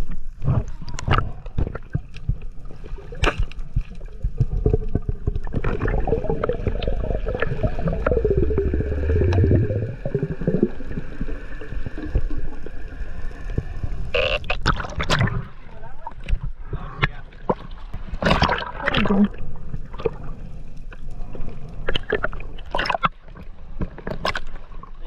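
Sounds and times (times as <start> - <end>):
crackling clicks: 0.0 - 15.4
low underwater rumble: 0.0 - 24.0
underwater bubbles gurgling: 0.0 - 25.0.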